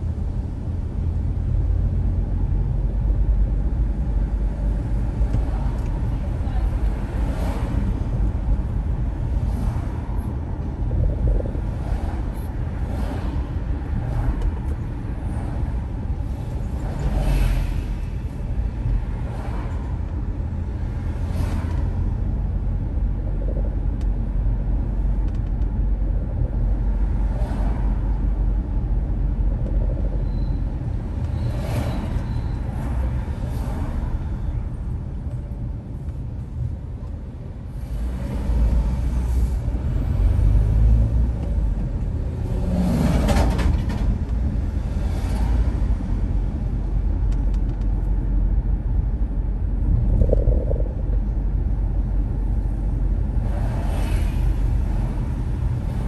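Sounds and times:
car engine and tyres rumbling: 0.0s - 56.0s
passing traffic: 0.0s - 56.0s.

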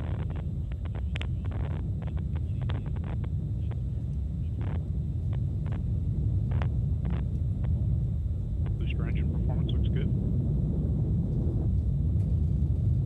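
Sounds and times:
sharp crackles: 0.0s - 7.8s
rocket engine rumble: 0.0s - 13.0s.

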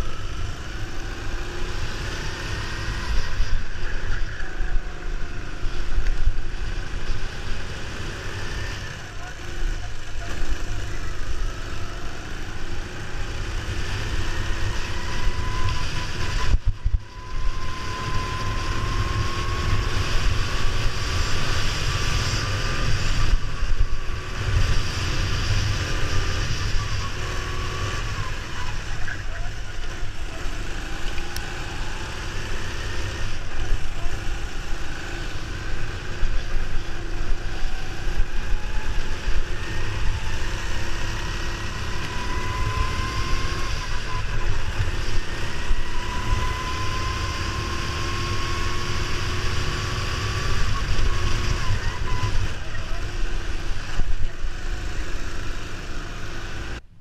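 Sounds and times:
go-kart engine revving: 0.0s - 56.9s
wind noise on microphone: 14.3s - 28.8s.

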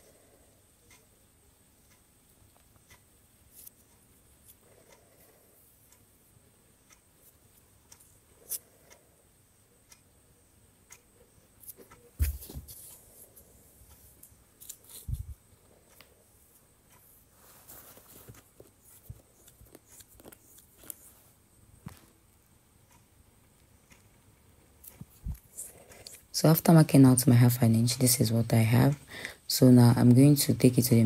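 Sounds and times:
dull thumps: 12.2s - 12.8s
hands rustling fabric: 12.2s - 15.4s, 17.0s - 22.2s.

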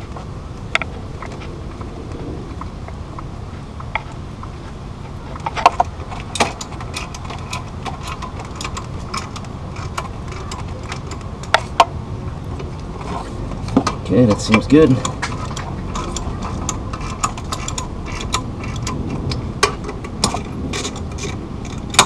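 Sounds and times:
low rumble: 0.0s - 14.2s.

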